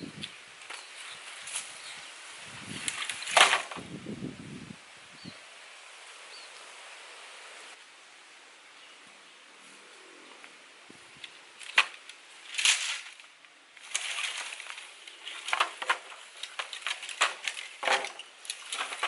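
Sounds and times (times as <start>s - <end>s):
sticks clattering on stones: 2.8s - 3.8s, 11.2s - 19.0s
sticks clicking and knocking: 11.2s - 13.2s, 13.8s - 19.0s.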